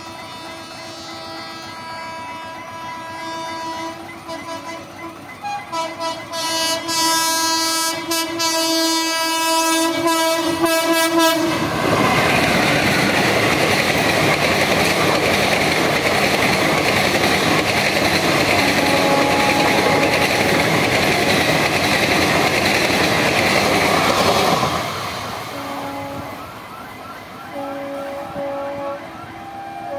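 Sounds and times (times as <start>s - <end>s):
train horn: 0.0s - 11.7s, 18.5s - 20.7s, 25.5s - 26.5s, 27.4s - 29.9s
train wheels on rails: 0.0s - 29.9s.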